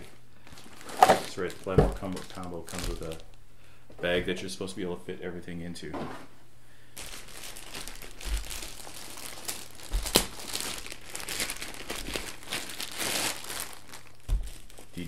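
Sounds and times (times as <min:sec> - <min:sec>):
packaging crinkling and rustling: 0:00.0 - 0:03.4, 0:07.0 - 0:15.0.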